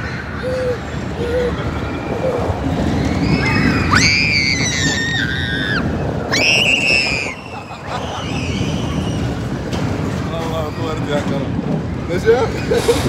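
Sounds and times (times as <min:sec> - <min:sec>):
riders screaming: 0:00.0 - 0:09.7
ride rumbling: 0:00.0 - 0:13.0.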